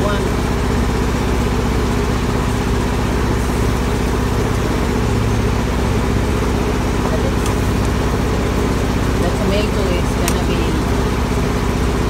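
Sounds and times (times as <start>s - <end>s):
diesel truck engine idling: 0.0s - 12.0s.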